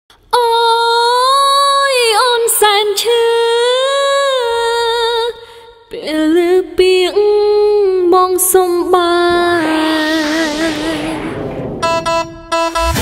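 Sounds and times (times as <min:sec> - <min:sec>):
woman singing unaccompanied: 0:00.3 - 0:11.2.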